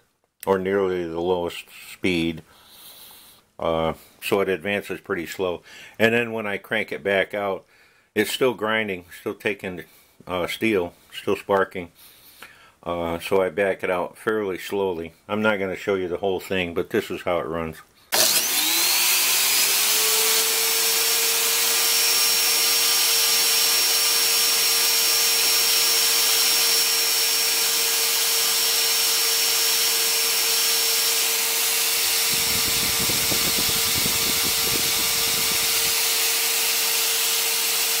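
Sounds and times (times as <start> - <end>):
grinder whining: 18.1 - 38.0.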